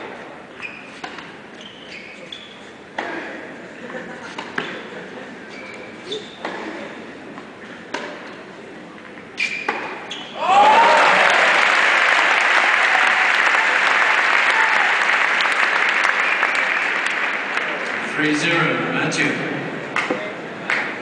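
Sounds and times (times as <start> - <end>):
tennis ball strikes: 7.9 - 8.2
crowd applauding: 10.5 - 18.1.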